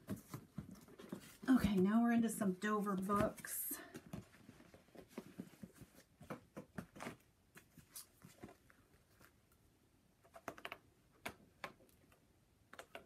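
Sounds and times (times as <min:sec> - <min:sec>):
paper books rustling and tapping: 0:00.0 - 0:02.2, 0:02.8 - 0:09.4.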